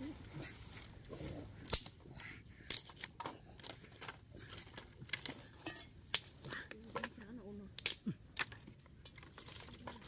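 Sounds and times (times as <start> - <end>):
dry twigs snapping: 1.6 - 2.0, 6.0 - 7.1, 7.7 - 10.0.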